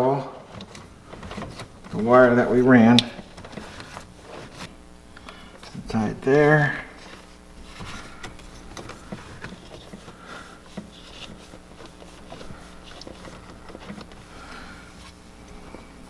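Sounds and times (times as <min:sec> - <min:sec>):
hands handling cables and zip tie: 0:07.0 - 0:14.3.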